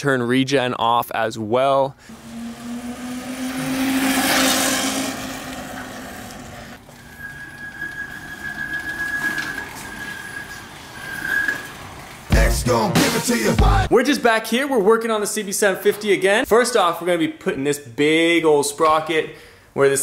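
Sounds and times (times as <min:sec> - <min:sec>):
electric motor whine: 0:02.1 - 0:06.8.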